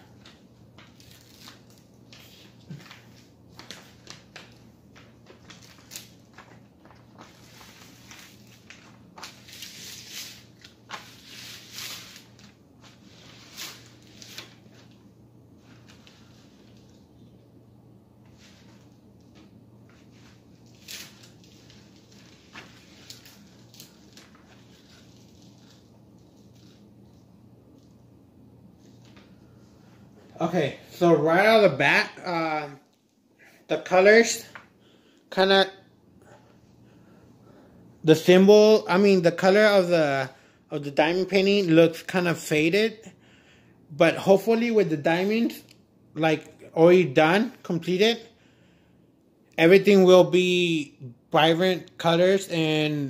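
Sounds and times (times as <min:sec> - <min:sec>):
paper sheet rustling: 0:00.0 - 0:17.1, 0:18.2 - 0:28.0, 0:28.8 - 0:31.9.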